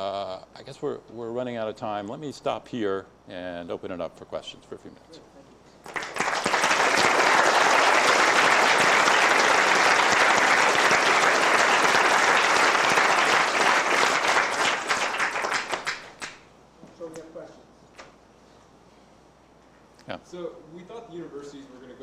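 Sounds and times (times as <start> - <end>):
audience applauding: 5.8 - 16.4.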